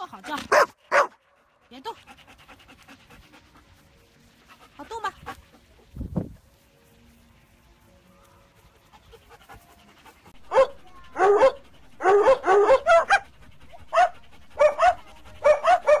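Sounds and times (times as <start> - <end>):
dog barking: 0.3 - 1.2, 10.5 - 13.3, 13.9 - 16.0.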